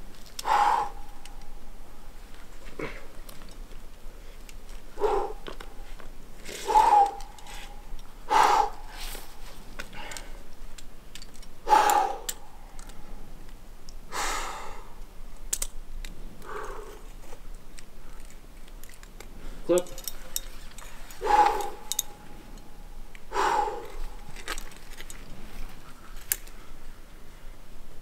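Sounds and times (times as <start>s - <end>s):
climber exhaling and grunting: 0.4s - 1.3s, 2.7s - 3.2s, 4.9s - 5.6s, 6.4s - 7.6s, 8.3s - 9.1s, 11.7s - 12.5s, 16.4s - 17.2s, 21.0s - 22.7s, 23.3s - 24.5s.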